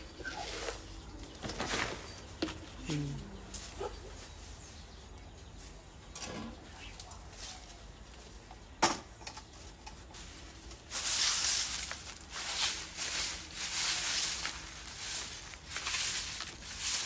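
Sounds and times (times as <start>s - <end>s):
broom sweeping tiled floor: 0.1s - 2.6s, 9.5s - 17.0s.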